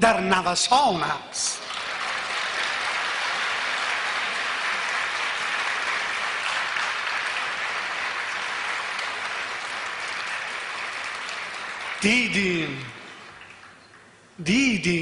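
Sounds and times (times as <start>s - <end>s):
large audience applauding: 1.6s - 13.4s.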